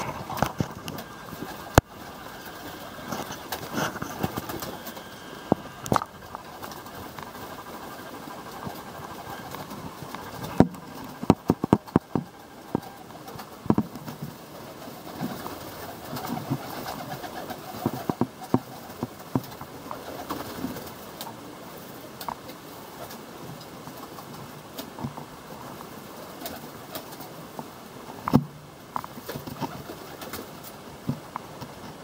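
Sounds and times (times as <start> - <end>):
pigeons cooing: 0.0 - 21.0
wing claps and flapping: 0.0 - 21.4, 22.2 - 25.3, 26.2 - 27.4, 28.3 - 32.0.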